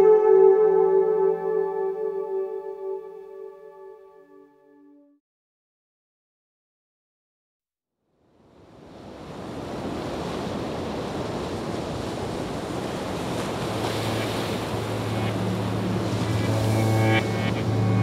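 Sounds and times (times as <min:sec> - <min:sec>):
harbour water: 0:09.0 - 0:18.0.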